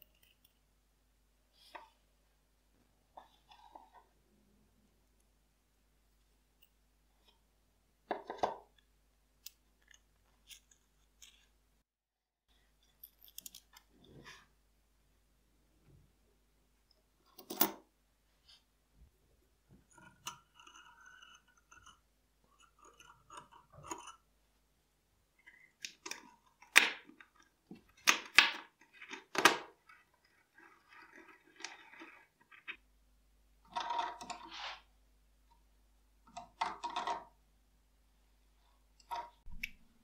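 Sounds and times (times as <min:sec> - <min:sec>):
metal parts scraping: 0:29.9 - 0:32.8.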